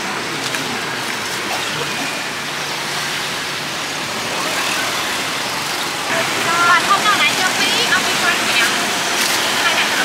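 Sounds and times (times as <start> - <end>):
faint street traffic: 0.0 - 10.0.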